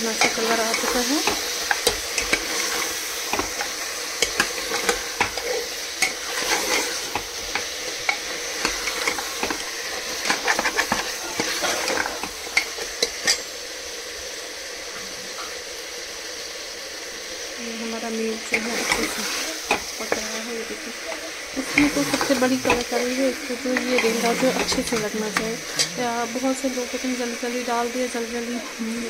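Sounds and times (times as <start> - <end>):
meat sizzling in oil: 0.0 - 29.0
spoon scraping a pot: 0.2 - 13.5.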